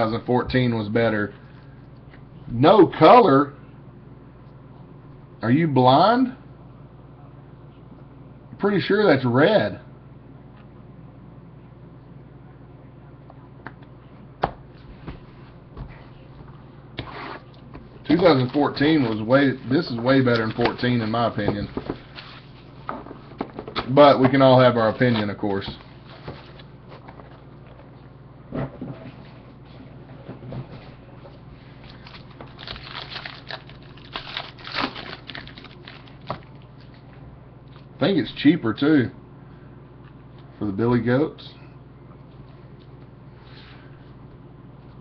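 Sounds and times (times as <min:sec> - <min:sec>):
foil pack rustling: 0:18.0 - 0:22.8, 0:31.9 - 0:36.6
foil wrapper crinkling and tearing: 0:31.9 - 0:36.6.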